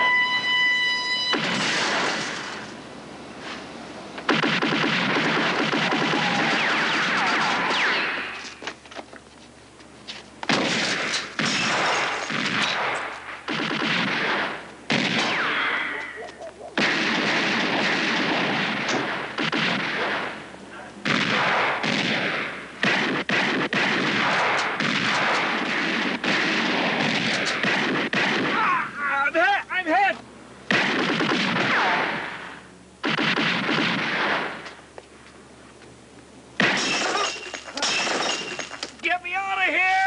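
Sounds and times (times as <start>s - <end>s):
rapid gunfire volleys: 1.3s - 2.6s, 4.3s - 8.4s, 10.5s - 16.0s, 16.8s - 28.8s, 30.7s - 34.8s.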